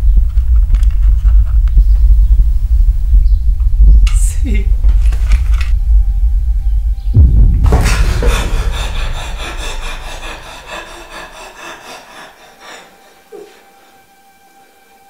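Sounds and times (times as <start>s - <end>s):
faint steady hum: 1.3s - 11.3s
deep boom: 6.9s - 11.6s.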